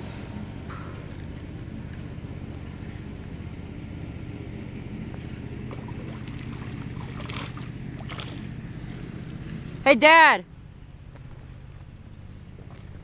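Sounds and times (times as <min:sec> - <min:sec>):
steady low hum: 0:00.0 - 0:13.0
fish splashing at water surface: 0:05.7 - 0:08.6.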